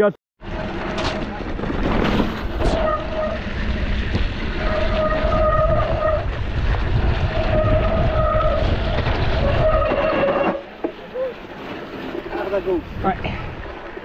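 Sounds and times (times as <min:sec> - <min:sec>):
bike rolling over rough ground: 0:00.4 - 0:14.0
wind rushing over microphone: 0:00.5 - 0:10.4, 0:12.2 - 0:14.0
steady high squeal: 0:02.6 - 0:03.8, 0:04.4 - 0:06.4, 0:07.2 - 0:12.7.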